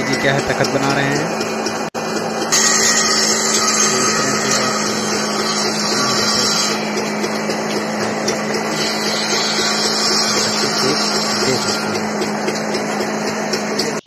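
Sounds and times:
circular saw cutting wood: 0:00.0 - 0:14.0
machine humming: 0:00.0 - 0:14.0.

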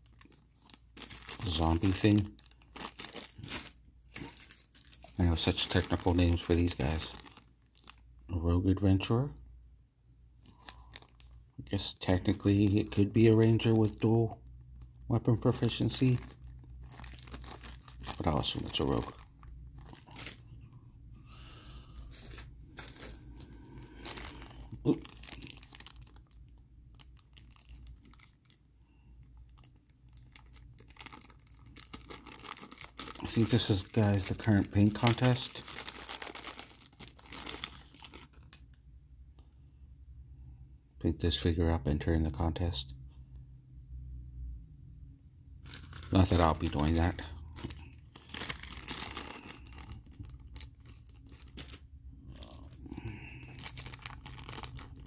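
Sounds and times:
plastic bag crinkling: 0:00.0 - 0:08.2, 0:10.4 - 0:20.6, 0:21.9 - 0:28.6, 0:29.3 - 0:38.8, 0:45.6 - 0:55.0.

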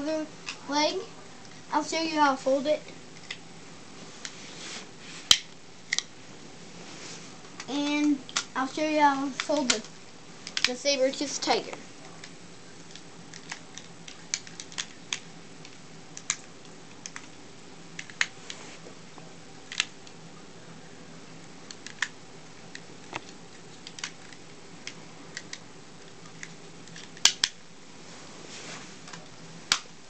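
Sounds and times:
plastic toy parts clicking: 0:21.8 - 0:22.1, 0:26.3 - 0:27.6.

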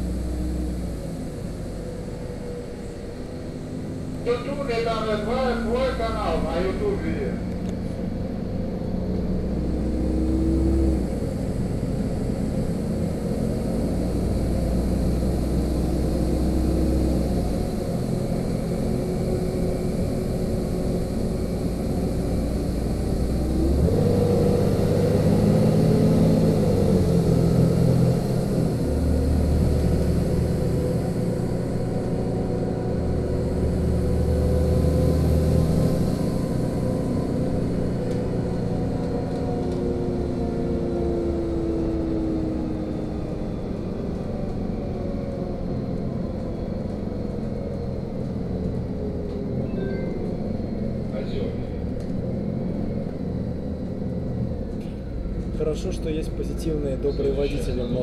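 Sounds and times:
bus engine: 0:00.0 - 0:58.0
road noise: 0:00.0 - 0:58.0.

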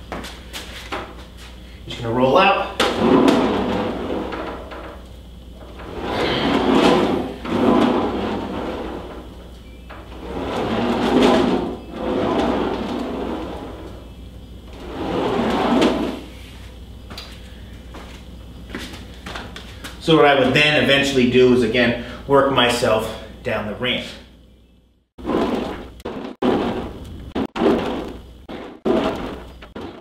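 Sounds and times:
ab wheel rolling on wooden plank: 0:02.6 - 0:16.4, 0:25.2 - 0:30.0.

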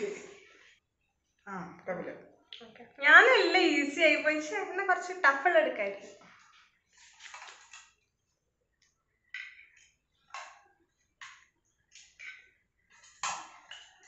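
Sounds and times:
items rustling and scraping: 0:05.9 - 0:14.0.

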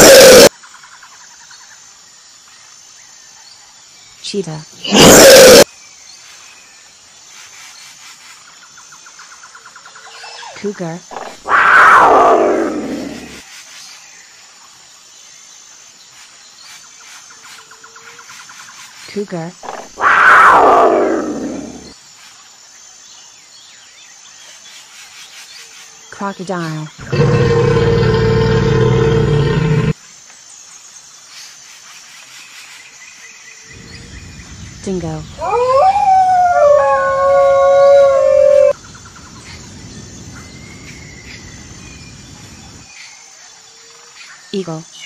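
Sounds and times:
cougar call: 0:00.0 - 0:00.5, 0:04.8 - 0:05.6, 0:11.1 - 0:13.4, 0:19.6 - 0:21.9, 0:27.0 - 0:30.0, 0:35.4 - 0:38.8
dingo howling: 0:00.0 - 0:00.5, 0:04.9 - 0:05.6, 0:19.7 - 0:21.9, 0:27.0 - 0:29.9, 0:35.4 - 0:38.8.

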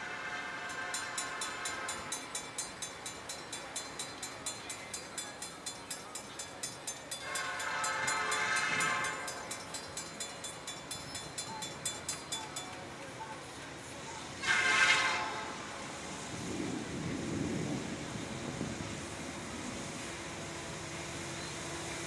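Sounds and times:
locomotive air horn blast: 0:00.0 - 0:02.1, 0:07.2 - 0:09.5, 0:14.4 - 0:16.0
crossing warning bell ringing: 0:00.4 - 0:15.7.

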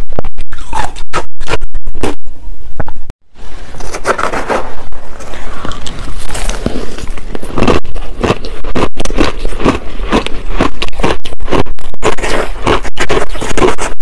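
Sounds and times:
ice crunching as chewed: 0:03.8 - 0:14.0.

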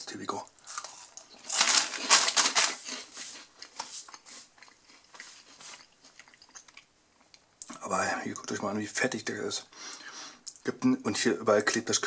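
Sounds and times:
plastic snack bag crinkling: 0:00.6 - 0:04.3.

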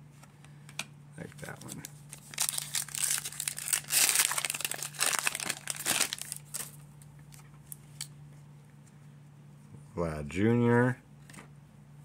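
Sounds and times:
plastic wrapper crinkling torn open: 0:01.5 - 0:06.8.

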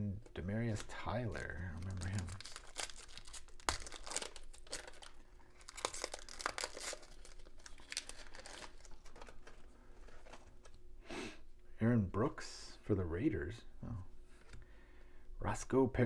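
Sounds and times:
cards rustling: 0:00.2 - 0:10.8
foil wrapper crinkling and tearing: 0:00.6 - 0:10.4.

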